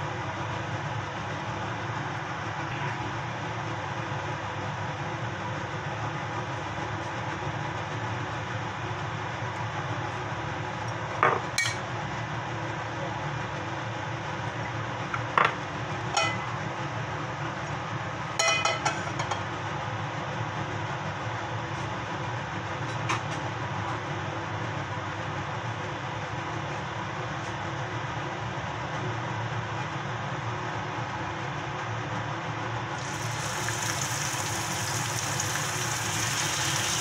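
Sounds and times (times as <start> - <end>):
whooshing kitchen background: 32.6 - 37.0
oil pouring into pan: 33.0 - 37.0.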